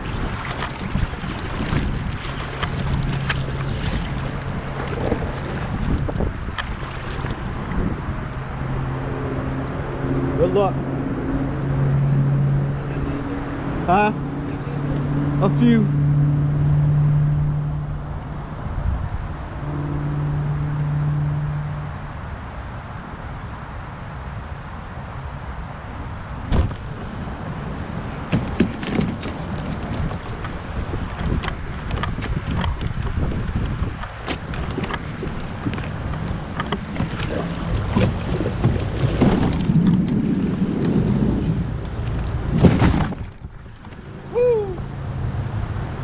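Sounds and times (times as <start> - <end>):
kayak rumbling over pavement: 0.0 - 9.6, 26.3 - 46.0
wind buffeting microphone: 0.0 - 10.0, 17.3 - 46.0
low motor hum: 0.0 - 46.0.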